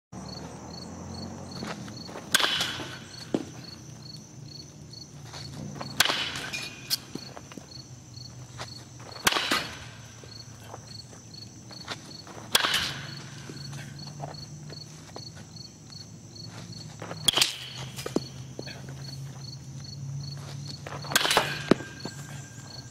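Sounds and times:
insects chirping: 0:00.2 - 0:22.9
baseball bat hitting ball: 0:01.6 - 0:03.8, 0:05.6 - 0:07.4, 0:09.1 - 0:10.2, 0:12.4 - 0:13.6, 0:17.2 - 0:18.3, 0:21.0 - 0:22.7.

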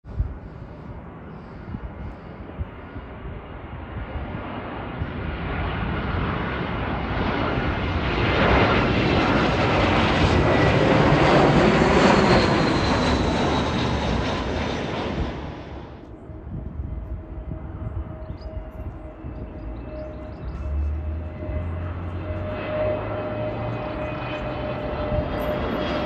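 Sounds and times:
jet plane flying overhead: 0:00.0 - 0:26.0
high jet engine whine: 0:00.1 - 0:26.0.

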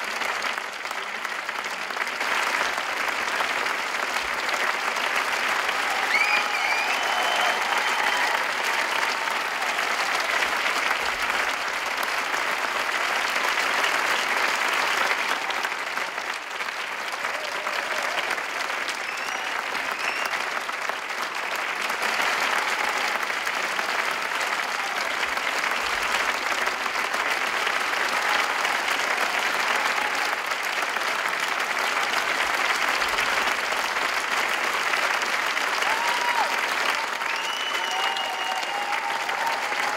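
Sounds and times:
audience applauding: 0:00.0 - 0:39.9
faint cheers: 0:05.5 - 0:10.8, 0:17.0 - 0:20.7, 0:24.5 - 0:25.4, 0:28.0 - 0:30.6, 0:35.6 - 0:39.9.

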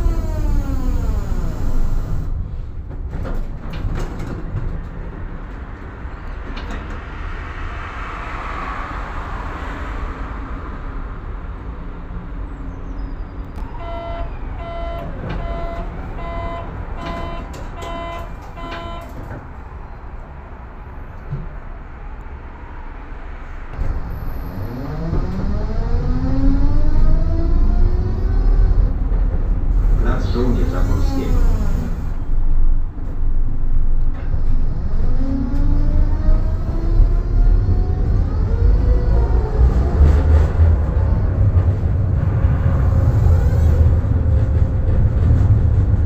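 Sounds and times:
tram motor whine: 0:00.0 - 0:02.6, 0:13.0 - 0:22.9
electronic beeps: 0:13.6 - 0:19.1.

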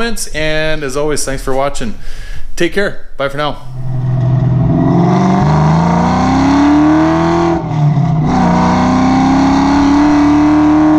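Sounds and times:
car engine accelerating hard: 0:03.8 - 0:10.9.

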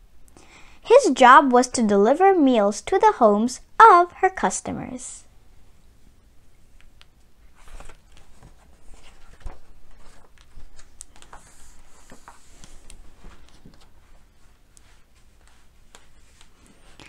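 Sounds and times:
book pages turning: 0:07.5 - 0:17.0
paper rustling: 0:07.5 - 0:17.0.

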